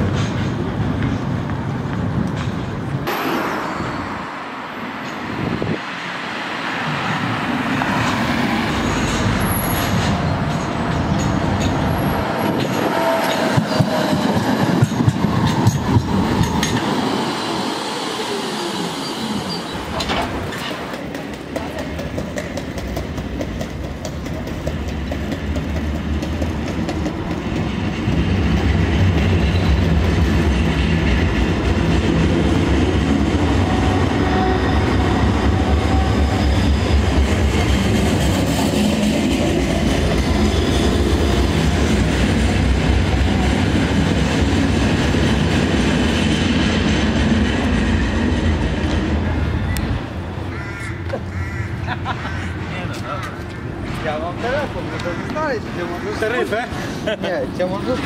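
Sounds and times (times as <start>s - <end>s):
approaching tram hum: 0.0s - 58.0s
tram passing: 0.0s - 58.0s
wheels clicking over rail joints: 7.7s - 17.0s, 19.8s - 32.7s.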